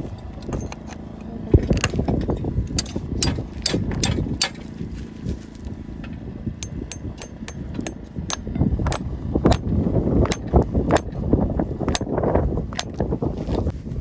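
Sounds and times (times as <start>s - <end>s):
hammer tapping on horseshoe: 2.7s - 4.7s, 6.6s - 11.2s, 11.9s - 13.0s.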